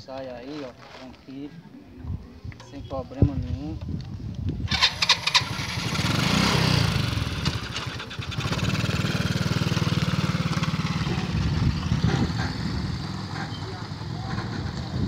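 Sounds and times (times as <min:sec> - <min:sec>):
small motorcycle engine putter: 0:04.7 - 0:05.9.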